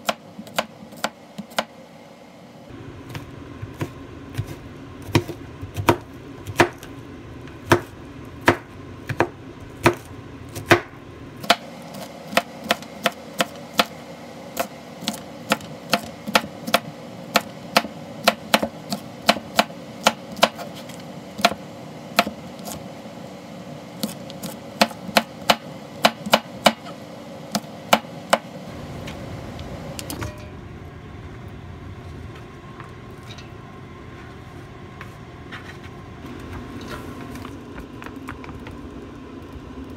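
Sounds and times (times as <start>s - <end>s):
knife chopping on cutting board: 0.0s - 1.7s, 3.1s - 6.9s, 7.6s - 14.0s, 14.6s - 21.6s, 22.2s - 22.8s, 24.0s - 28.5s
steady background hum: 0.0s - 39.9s.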